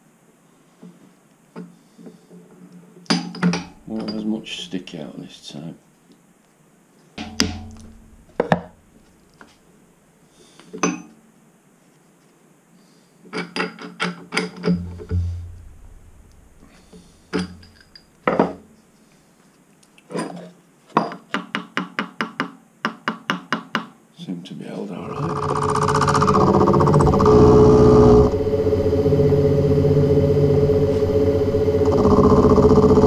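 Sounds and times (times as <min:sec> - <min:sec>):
metal clanks and knocks: 0:03.1 - 0:04.5, 0:07.2 - 0:08.8, 0:13.4 - 0:18.6.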